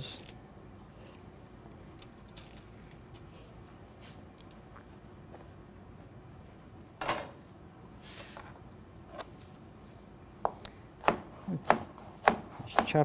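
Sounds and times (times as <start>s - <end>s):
knife chopping on plastic cutting board: 10.4s - 13.0s.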